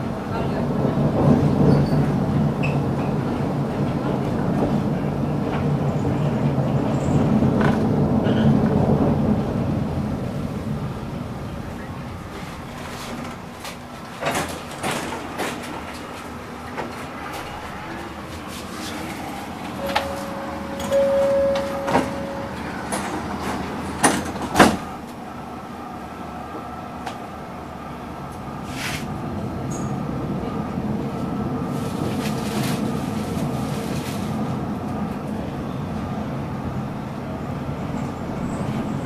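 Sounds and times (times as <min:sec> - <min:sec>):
tram running rumble: 0:00.0 - 0:39.0
short beep: 0:19.8 - 0:23.2.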